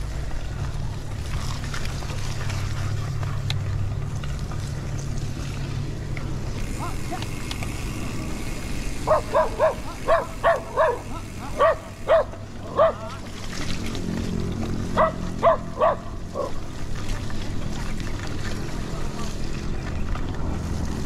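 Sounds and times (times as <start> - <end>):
car driving rumble: 0.0 - 21.0
dog barking: 9.0 - 13.1, 15.0 - 16.6.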